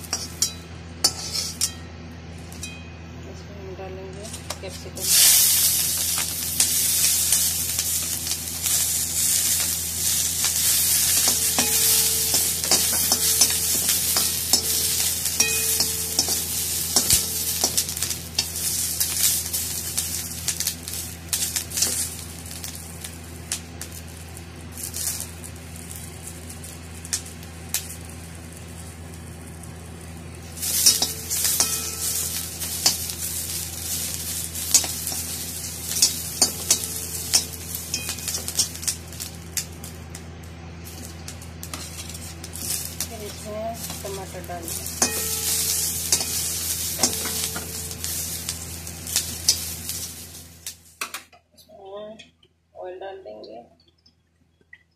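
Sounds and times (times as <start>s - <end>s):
vegetables sizzling in oil: 0.0s - 1.7s, 4.1s - 51.1s
metal spoon scraping pan: 0.0s - 1.8s.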